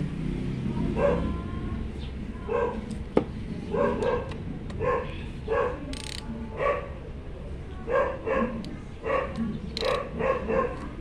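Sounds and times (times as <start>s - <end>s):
dog barking: 0.9s - 1.4s, 2.5s - 2.8s, 3.7s - 5.9s, 6.6s - 7.0s, 7.9s - 11.0s.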